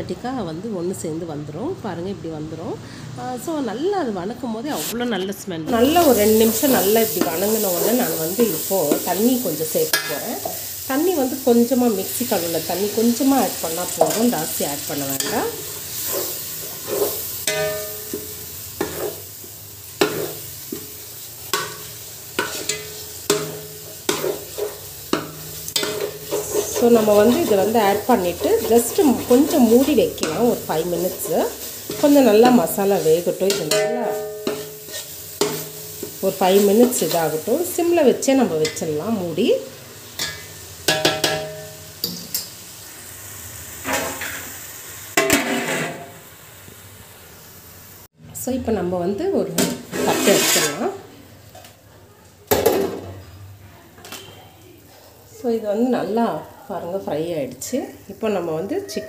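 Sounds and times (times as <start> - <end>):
paste sizzling: 5.7 - 48.1, 49.5 - 51.1
spatula scraping steel pot: 13.7 - 18.2, 21.6 - 37.4, 49.6 - 51.0.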